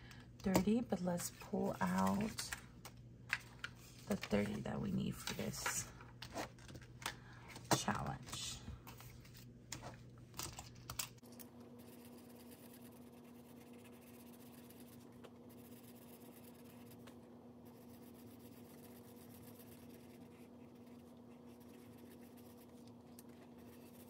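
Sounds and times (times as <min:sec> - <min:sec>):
faint room hum: 0:00.0 - 0:24.0
cash and paper clicking: 0:07.8 - 0:11.5.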